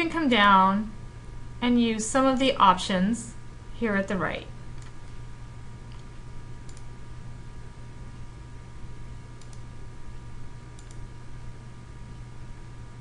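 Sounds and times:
low electrical hum: 0.0 - 13.0
computer mouse clicks: 4.8 - 5.2, 5.9 - 6.9, 9.4 - 9.7, 10.8 - 11.0.

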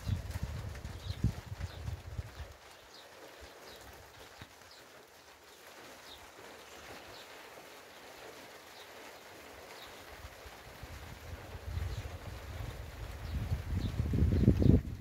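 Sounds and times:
wind gust buffeting microphone: 0.0 - 2.6, 10.6 - 15.0
rain falling on vegetation: 0.0 - 15.0.

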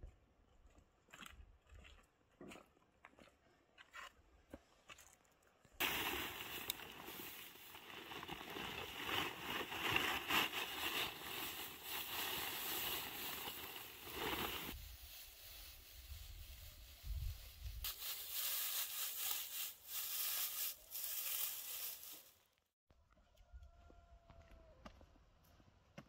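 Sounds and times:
footsteps: 5.8 - 14.8
hay rustling in plastic sack: 5.8 - 22.3.

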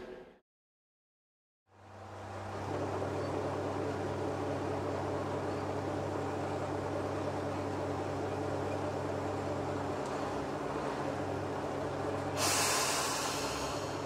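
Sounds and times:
diesel engine idling: 1.7 - 14.0.

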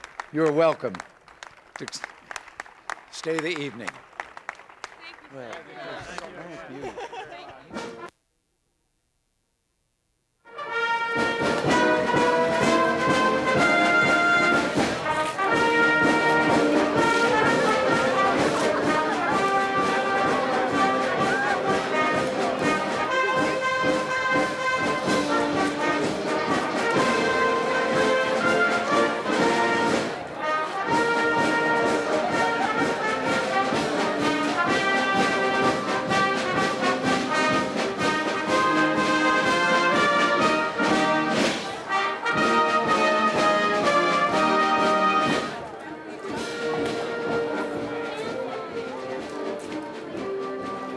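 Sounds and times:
military brass band playing: 7.7 - 8.1, 10.4 - 50.9.

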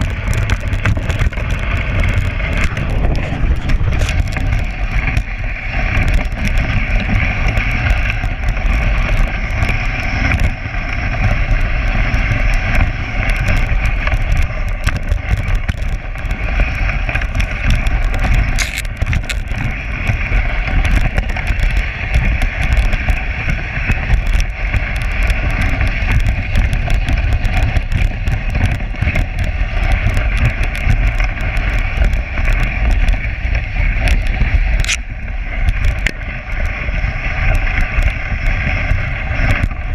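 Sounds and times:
sled frame rattling: 0.0 - 39.9
sled runners hissing over snow: 0.0 - 39.9
wind rumble on microphone: 0.0 - 39.9.

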